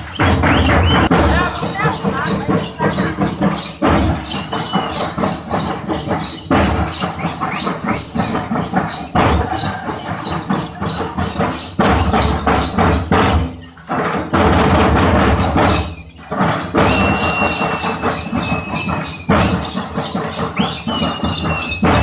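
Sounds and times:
low drum beat: 0.0 - 5.8
jingling rattle rhythm: 0.0 - 22.0.

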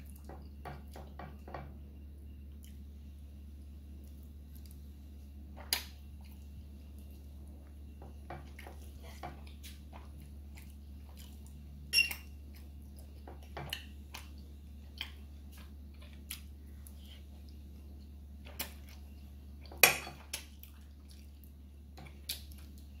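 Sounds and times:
fork clinking on a plate: 11.9 - 12.3.

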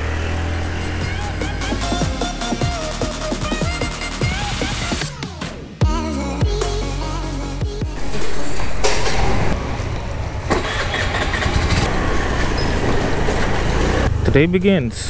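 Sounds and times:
scooter engine pulling away: 0.0 - 2.6, 8.6 - 14.4.

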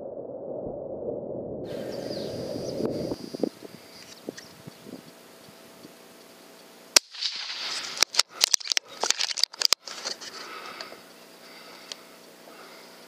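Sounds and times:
rifle shot: 7.0 - 9.2
rifle handling rustles and clicks: 7.0 - 10.9.

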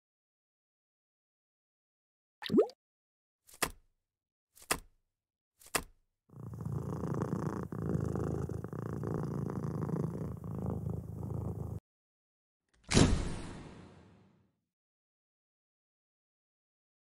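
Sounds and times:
cat purring: 6.3 - 11.8.

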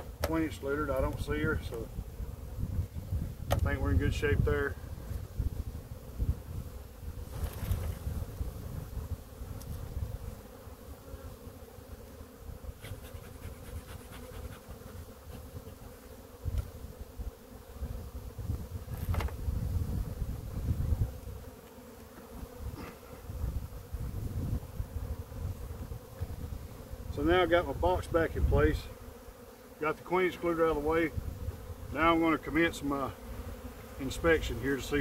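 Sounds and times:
wooden hive boxes knocking: 0.0 - 0.5, 3.4 - 3.8
bees humming: 4.8 - 35.0.

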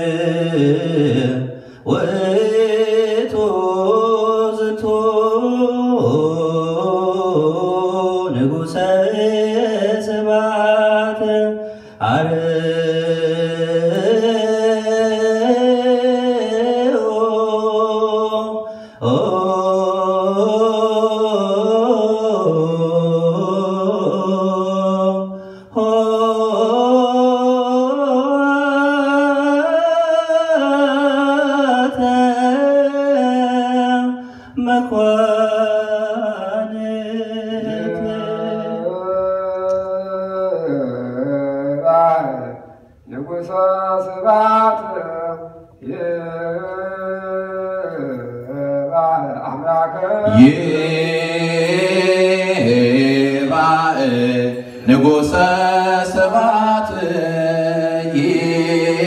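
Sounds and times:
voices chanting: 37.6 - 39.5.

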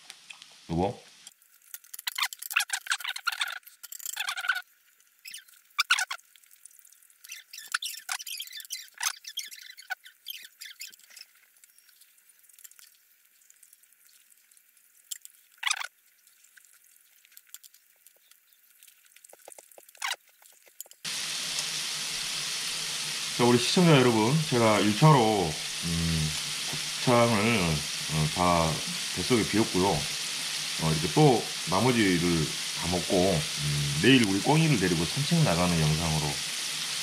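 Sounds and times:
meat sizzling in a pan: 0.0 - 37.0
chewing: 10.6 - 21.1.

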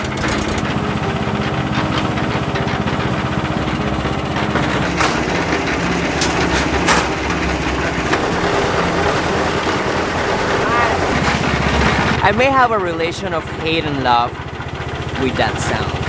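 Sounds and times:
sharp knocks: 0.0 - 10.2
concrete mixer engine running: 0.0 - 16.0.

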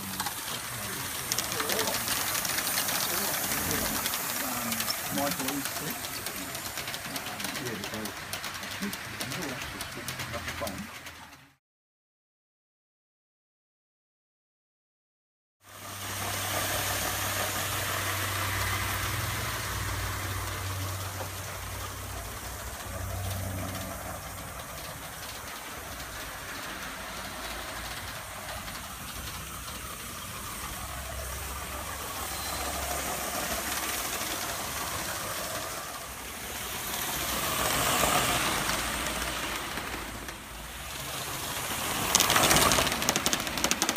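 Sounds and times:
model steam engine hissing: 0.0 - 11.0, 15.7 - 43.9
wheels running on track: 0.0 - 11.6, 15.7 - 43.9.

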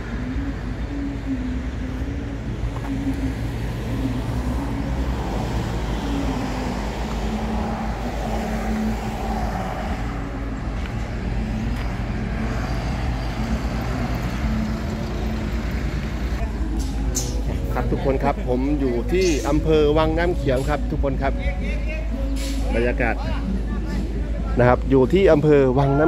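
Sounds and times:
wavering hum: 0.0 - 19.7
low rumble of vehicles: 0.0 - 26.0.

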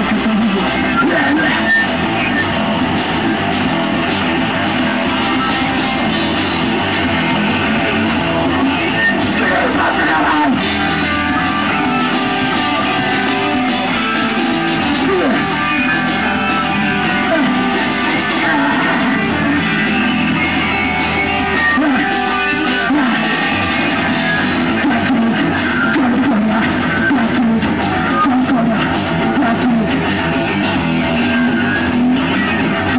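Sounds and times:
vocals into a microphone: 0.0 - 2.6, 8.2 - 30.5
distorted electric guitar: 0.0 - 32.9
fast drum kit: 0.0 - 32.9.

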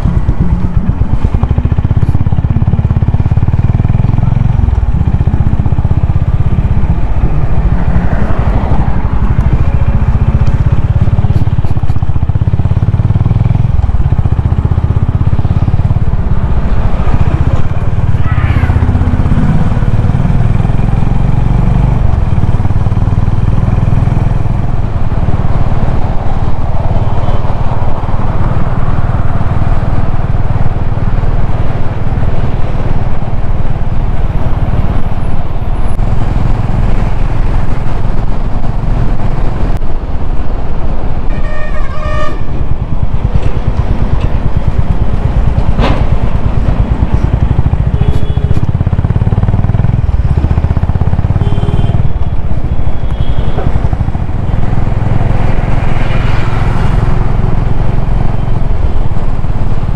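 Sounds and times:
motorcycle engine cruising: 0.0 - 59.9
vehicle horn honking: 41.3 - 42.5, 48.0 - 48.6, 51.4 - 52.1.

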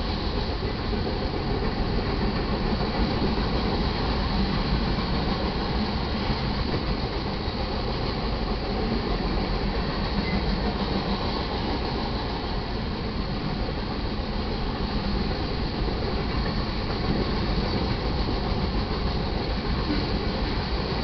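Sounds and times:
train wheels on rails: 0.0 - 21.0.

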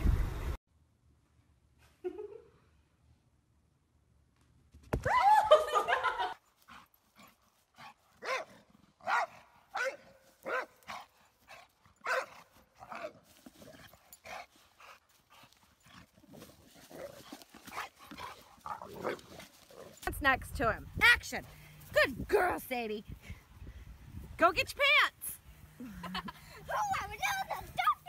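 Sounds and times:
dog barking: 8.2 - 11.1, 12.0 - 13.1.

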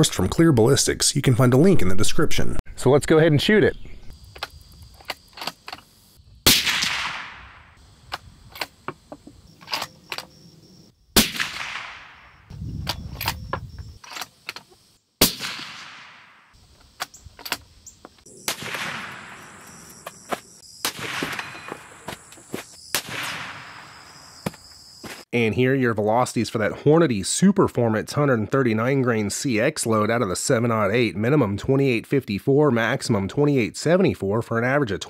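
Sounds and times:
rifle shots with echo: 6.5 - 7.8, 11.2 - 12.4, 15.2 - 16.5, 18.3 - 19.8, 20.8 - 21.8, 23.0 - 24.0.

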